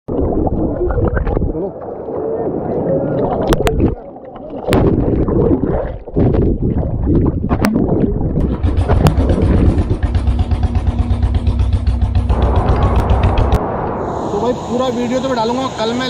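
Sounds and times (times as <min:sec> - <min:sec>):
rushing churning water: 0:00.2 - 0:11.4
low drone with engine-like pulse: 0:08.4 - 0:16.0.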